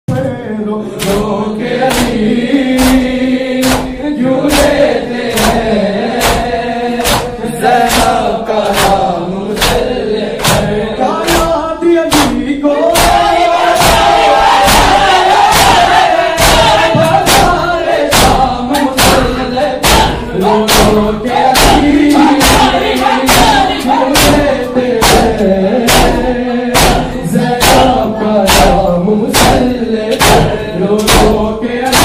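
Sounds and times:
man singing lament: 0.1 - 32.0
chest-beating strikes: 1.9 - 9.8, 10.4 - 32.0.

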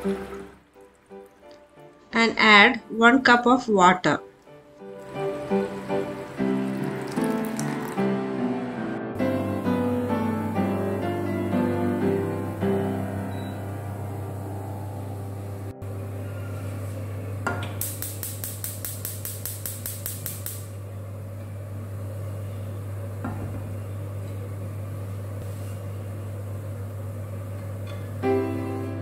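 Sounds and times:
hood fan humming: 0.0 - 29.0
gas igniter clicking rapidly: 17.8 - 20.8.

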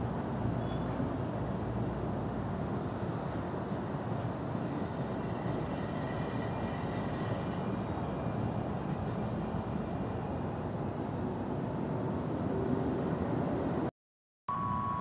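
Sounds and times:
railway station ambience: 0.0 - 13.9, 14.5 - 15.0
faint high whine: 14.5 - 15.0.

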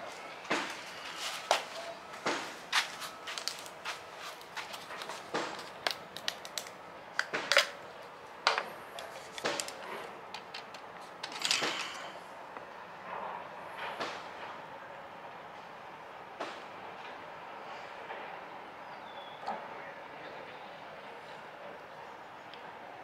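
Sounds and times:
plastic parts clicking and knocking: 8.5 - 12.1.

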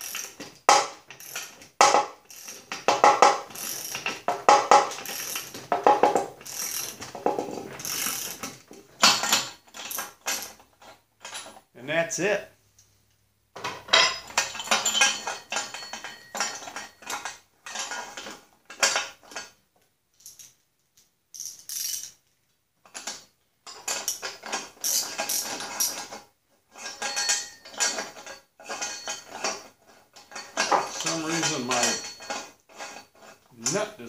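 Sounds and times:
ratchet clicking: 1.2 - 1.5, 2.3 - 2.6, 3.2 - 4.1, 4.7 - 5.6, 6.4 - 7.0, 7.8 - 8.4
steel washers clinking: 2.3 - 11.6, 13.8 - 19.4, 26.8 - 33.9.

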